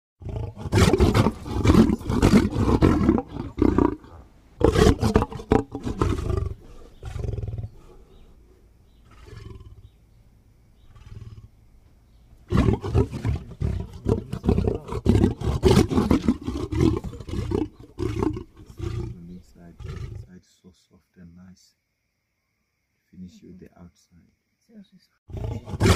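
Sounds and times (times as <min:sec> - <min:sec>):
lion growling: 0:00.2 - 0:10.0, 0:10.8 - 0:11.5, 0:12.4 - 0:20.3, 0:25.3 - 0:25.9.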